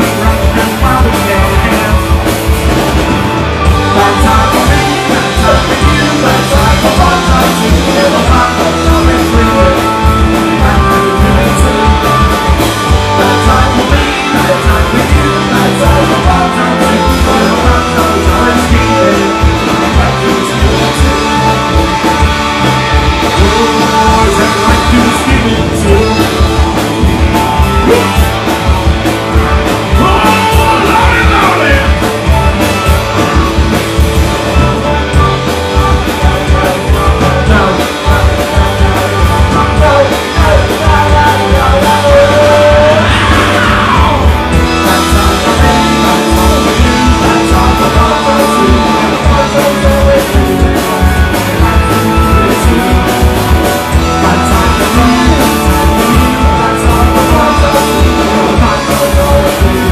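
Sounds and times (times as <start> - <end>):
person singing: 0.0 - 2.2, 3.6 - 28.6, 29.4 - 33.7, 34.5 - 59.9
bass guitar: 0.0 - 59.9
drum kit beat: 0.0 - 59.9
electric guitar: 0.0 - 59.9.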